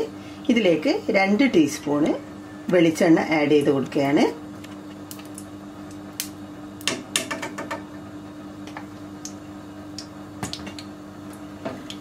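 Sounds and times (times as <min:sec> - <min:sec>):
steady low hum: 0:00.0 - 0:12.0
oil crackling in frying pan: 0:04.6 - 0:07.9.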